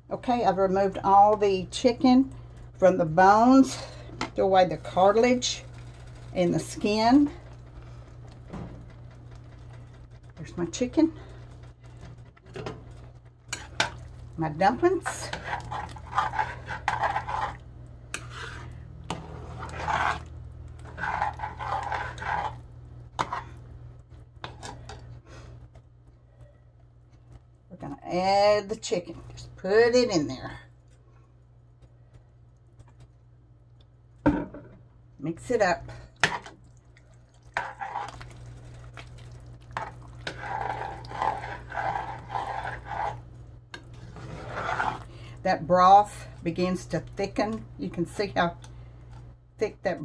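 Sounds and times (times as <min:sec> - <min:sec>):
low steady hum: 0:00.0 - 0:50.0
metal spoon scraping pot: 0:13.5 - 0:14.0, 0:14.7 - 0:22.6, 0:37.6 - 0:38.3, 0:39.8 - 0:43.2, 0:43.8 - 0:45.1.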